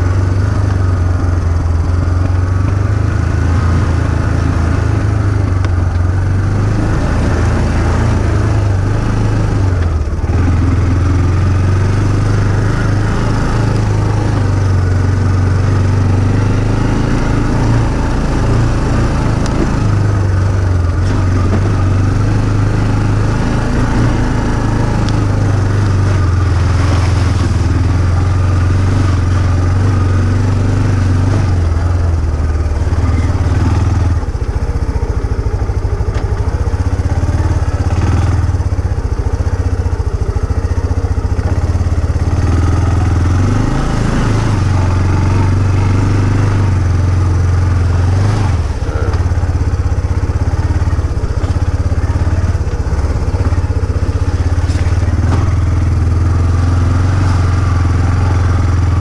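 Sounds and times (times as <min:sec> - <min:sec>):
off-road vehicle engine running: 0:00.0 - 0:59.0.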